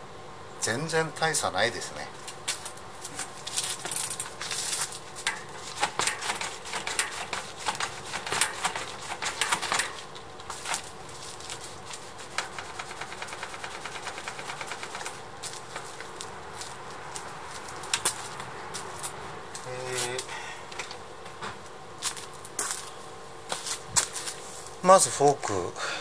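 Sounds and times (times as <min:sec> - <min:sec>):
bike suspension clicks and rattles: 0:02.2 - 0:19.1.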